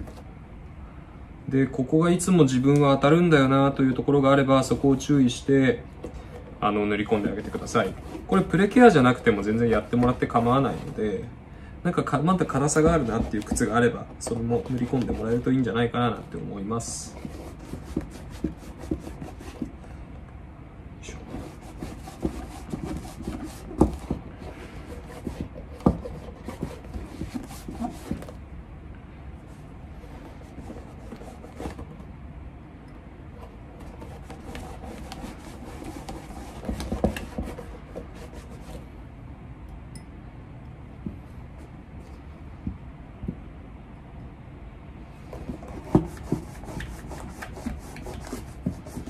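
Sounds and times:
rubbing on leather: 6.8s - 11.1s, 12.4s - 15.5s, 16.8s - 19.8s, 21.1s - 28.4s, 30.0s - 32.0s, 33.8s - 38.9s, 45.3s - 49.0s.

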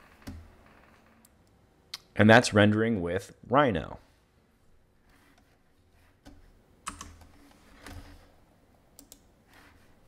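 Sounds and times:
computer mouse clicks: 8.9s - 9.8s
faint computer keyboard clicks: 9.0s - 9.3s.

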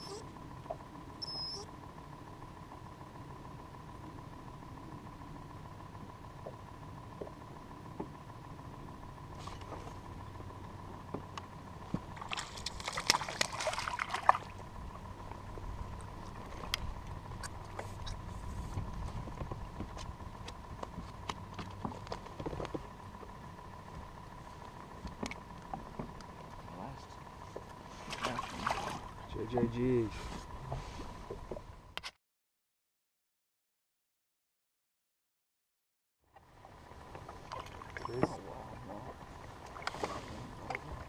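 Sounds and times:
steady faint tone: 0.0s - 12.9s
wind and water rumble: 0.0s - 32.0s, 36.2s - 41.0s.

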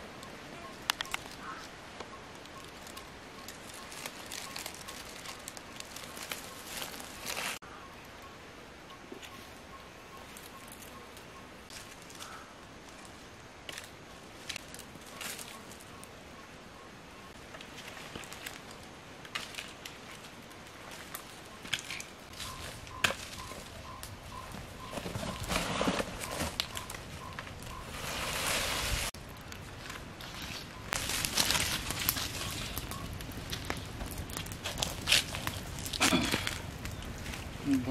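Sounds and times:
sticks and leaves crackling: 0.0s - 8.2s, 10.1s - 16.3s, 17.3s - 37.9s
faint high chirp: 7.7s - 11.6s, 22.3s - 28.4s.

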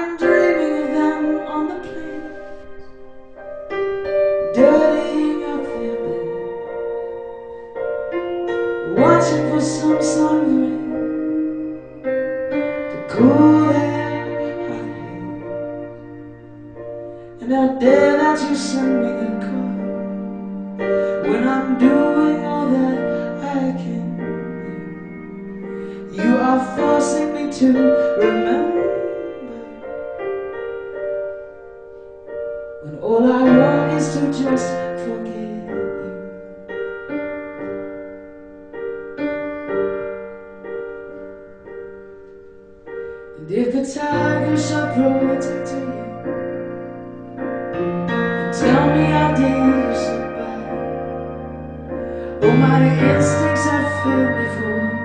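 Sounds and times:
woman singing: 0.0s - 2.7s, 4.5s - 6.6s, 8.9s - 11.4s, 13.0s - 15.9s, 17.4s - 20.1s, 21.1s - 25.2s, 26.1s - 29.8s, 32.9s - 36.2s, 43.4s - 46.2s, 48.5s - 51.1s, 52.4s - 55.0s
electric piano chords: 0.0s - 55.0s.

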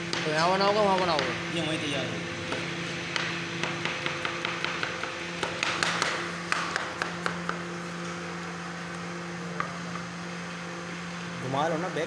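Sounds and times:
steady low hum: 0.0s - 12.0s
knife chopping on cutting board: 2.5s - 7.6s.

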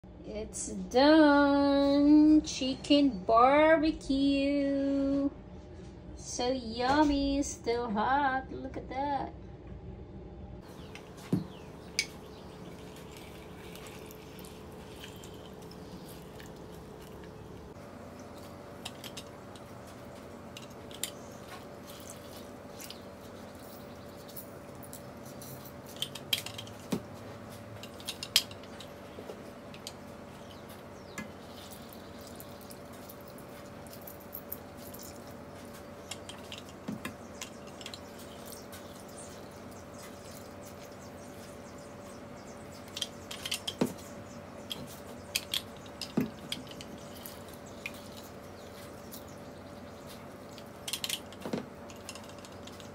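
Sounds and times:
steady low hum: 0.0s - 52.9s
juice dripping: 10.6s - 52.9s.

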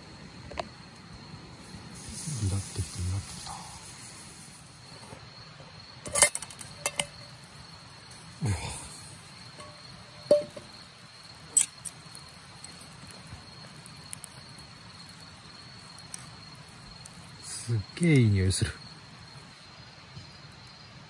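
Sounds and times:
crickets chirring: 0.0s - 21.0s
metal pot lid clinking: 6.0s - 7.2s, 9.6s - 10.6s.

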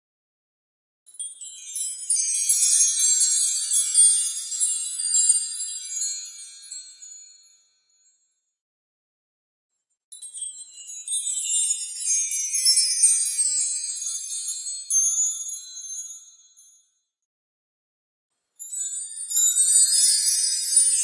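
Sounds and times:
high tinkling chimes: 1.1s - 8.4s, 10.1s - 17.1s, 18.6s - 21.0s.

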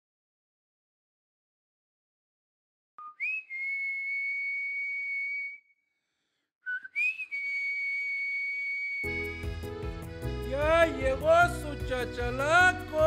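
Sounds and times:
high-pitched whistles: 3.0s - 5.8s, 6.6s - 9.5s.

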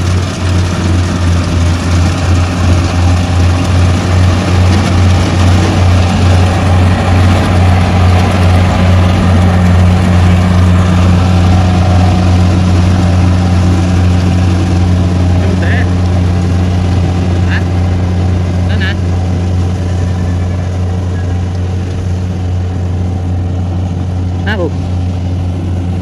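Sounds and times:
combine harvester diesel engine: 0.0s - 26.0s.

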